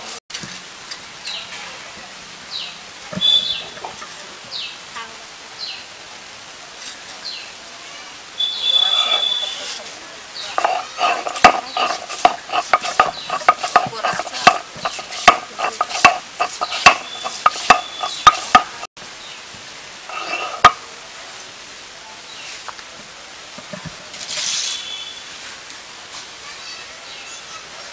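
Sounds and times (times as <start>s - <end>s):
stone roller knocking and scraping: 10.5s - 18.9s, 20.1s - 20.8s.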